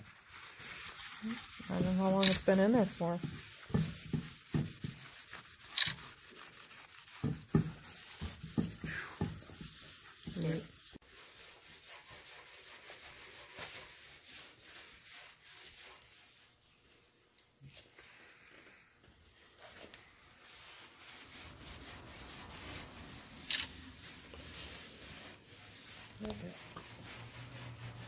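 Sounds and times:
faint steady rustle: 0.0 - 12.1
rubbing and scraping surface: 0.0 - 17.1, 19.3 - 28.0.

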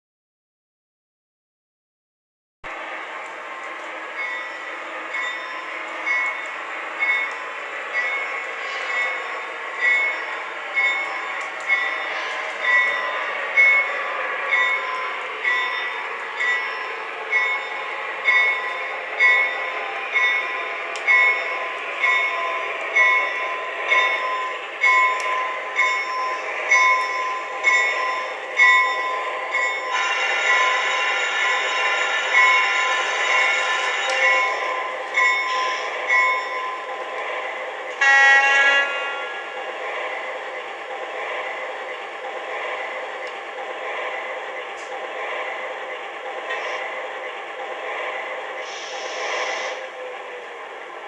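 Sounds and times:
locomotive bell ringing: 4.1 - 37.0.

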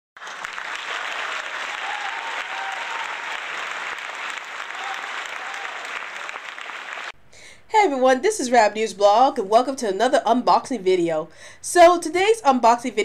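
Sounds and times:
crowd applauding: 0.2 - 7.2.

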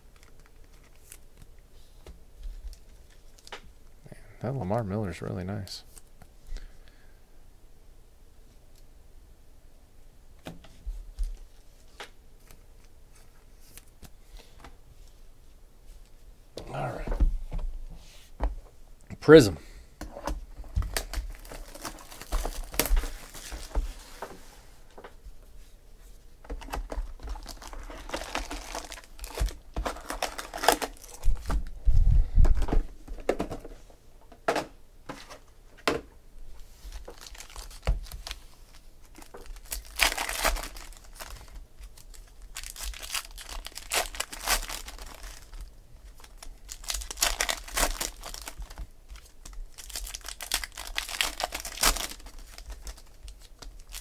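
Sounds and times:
foil packs crinkling and tearing: 0.0 - 1.5, 20.8 - 23.8, 26.6 - 31.7, 36.9 - 54.0.

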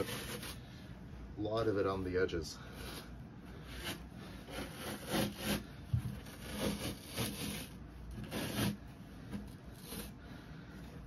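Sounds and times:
carpet ripping off wood: 3.7 - 10.1.

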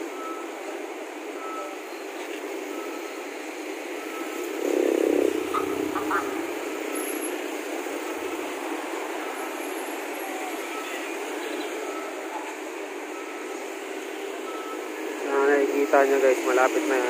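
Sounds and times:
motorcycles and cars passing: 0.0 - 17.0
faint repeating beep: 14.4 - 14.9.

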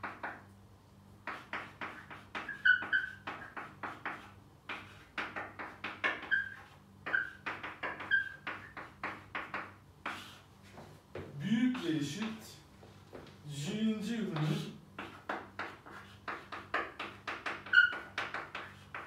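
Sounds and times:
chalk tapping and scratching: 0.0 - 0.5, 1.2 - 13.4, 14.3 - 19.0
high chalk squeaks: 1.2 - 10.8, 14.4 - 19.0.

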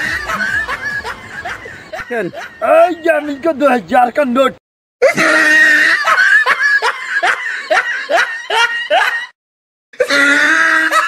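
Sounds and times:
high-pitched laughter: 0.0 - 3.4, 5.0 - 9.4, 10.0 - 11.0.

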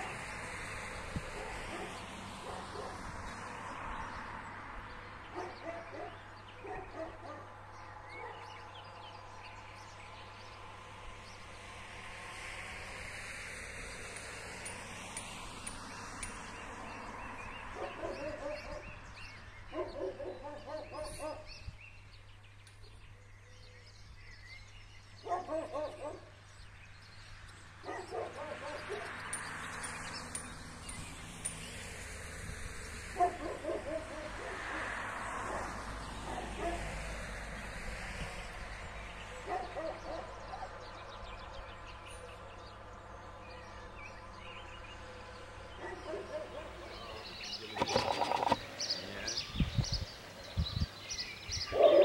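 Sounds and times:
outdoor background noise: 0.0 - 52.0
dog barking: 1.4 - 3.0, 5.3 - 7.5, 8.1 - 8.5, 17.8 - 19.0, 19.7 - 21.5, 25.2 - 26.3, 27.8 - 29.1, 33.2 - 34.7, 35.5 - 36.9, 39.4 - 40.8, 45.8 - 48.5, 51.7 - 52.0.

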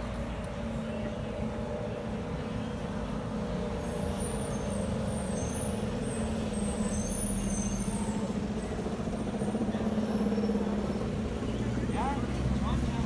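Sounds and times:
street noise: 0.0 - 13.0
vehicle engine idling: 0.0 - 13.0.

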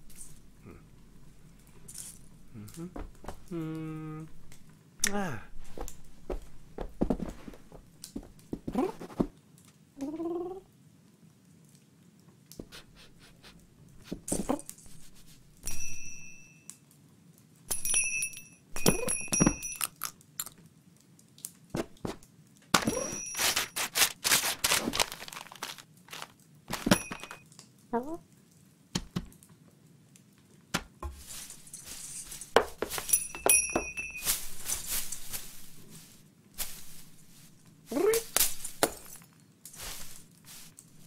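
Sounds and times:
knocks and crunching tumble: 1.8 - 3.5, 5.5 - 9.4, 21.8 - 27.4
bell-like ringing dings: 15.7 - 16.7, 17.8 - 19.8, 33.1 - 34.4.

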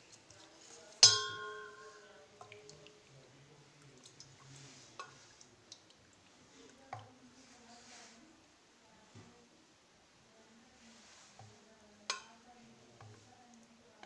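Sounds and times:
faint utensil taps: 0.2 - 3.0, 3.8 - 7.2, 11.3 - 14.0
spoon clanging on steel bowl: 1.0 - 2.6, 12.1 - 12.4.

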